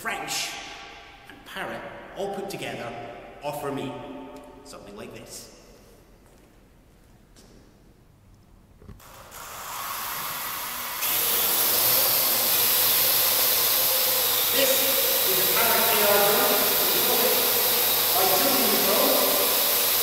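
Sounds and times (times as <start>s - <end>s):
drone propellers whirring: 9.7s - 20.0s.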